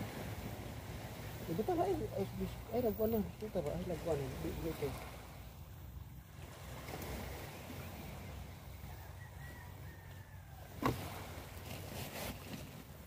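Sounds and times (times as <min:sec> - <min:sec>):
faint sea wash: 0:00.0 - 0:13.0
low wind rumble: 0:00.0 - 0:13.0
rustle of net being handled: 0:10.8 - 0:13.0.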